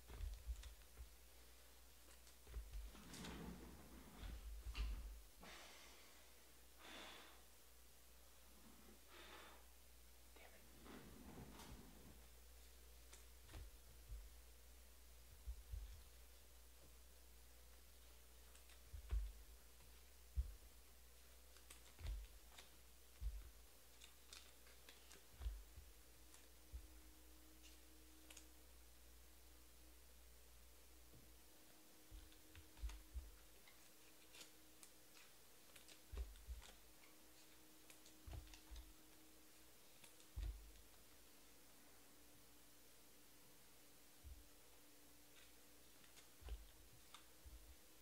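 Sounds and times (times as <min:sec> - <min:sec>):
person breathing close to microphone: 0:05.4 - 0:07.6, 0:08.6 - 0:09.8
trading cards knocking and clicking: 0:18.5 - 0:20.7, 0:37.9 - 0:39.0.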